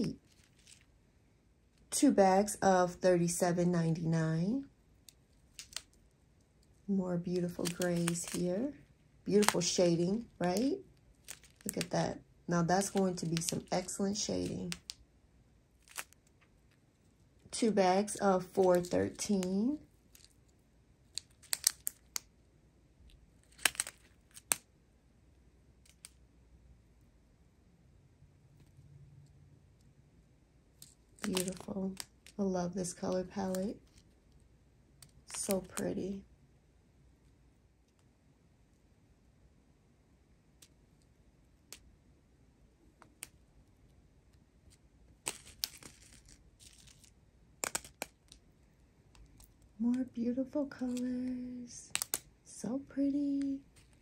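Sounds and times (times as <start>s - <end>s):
plastic bags crinkling: 7.4s - 12.0s, 12.7s - 14.9s, 18.4s - 20.5s, 31.2s - 32.4s.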